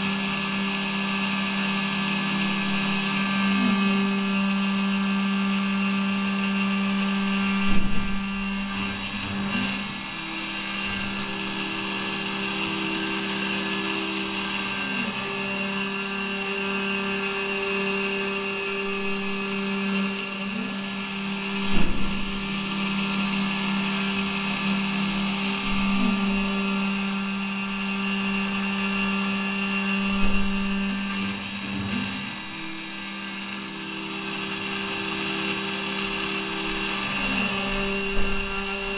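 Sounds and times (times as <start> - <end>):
milling spindle whining: 0.0 - 38.9
machine movement tone: 0.9 - 38.9
end mill hissing in metal: 7.1 - 38.9
short knocks: 21.5 - 23.2.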